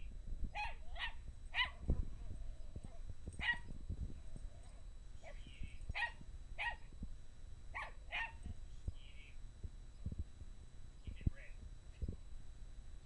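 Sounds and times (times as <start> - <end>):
small dog barking: 0.6 - 1.9, 3.4 - 3.7, 5.2 - 6.8, 7.8 - 8.5.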